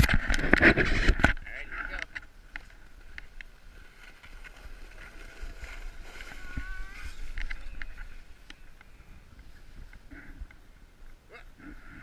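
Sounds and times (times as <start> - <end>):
sled scraping over snow: 2.6 - 10.1.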